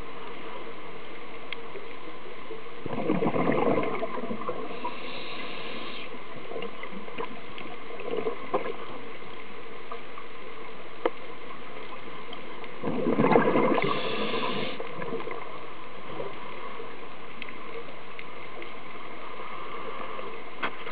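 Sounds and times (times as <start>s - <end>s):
gurgling rush of bubbles: 2.8s - 8.9s, 12.8s - 15.6s
underwater hiss: 3.4s - 6.3s, 13.2s - 15.1s.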